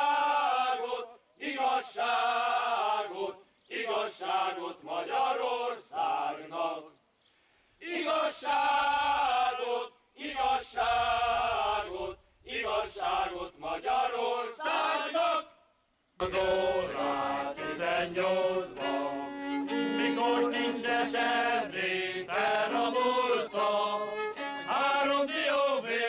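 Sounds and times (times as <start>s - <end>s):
men's choir singing unaccompanied: 0.0s - 7.0s, 7.8s - 15.6s, 16.2s - 26.0s
singers breathing: 7.2s - 7.8s.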